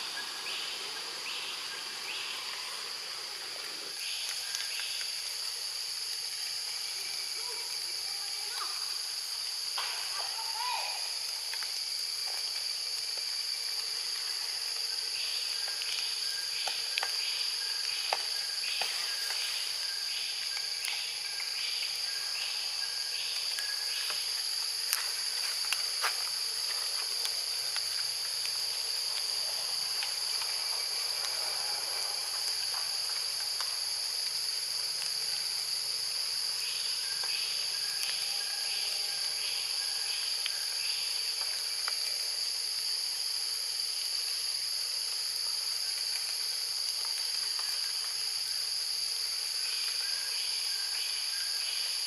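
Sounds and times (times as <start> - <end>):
insects droning: 0.0 - 52.0
pulsing insect chirp: 0.0 - 52.0.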